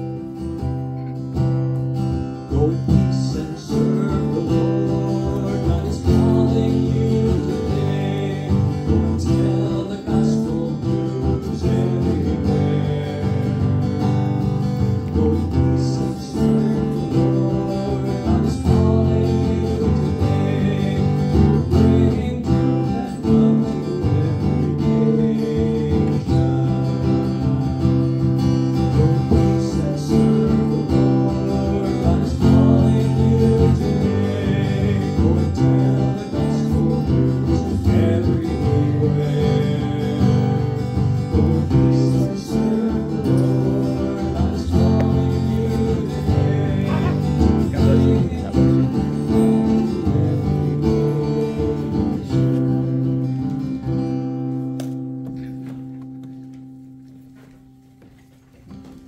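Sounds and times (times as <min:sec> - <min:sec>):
acoustic guitar strumming chords: 0:00.0 - 0:58.1.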